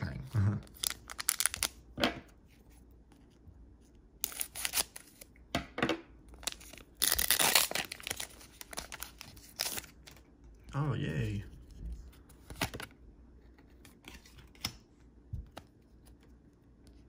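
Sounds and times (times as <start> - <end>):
foil pack tearing: 6.4 - 9.9.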